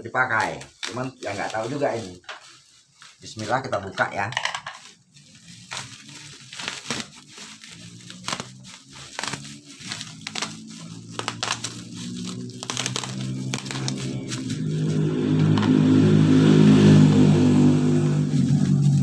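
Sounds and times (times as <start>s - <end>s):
plastic wrapping crinkling and tearing: 0.0s - 19.0s
low engine drone: 8.3s - 19.0s.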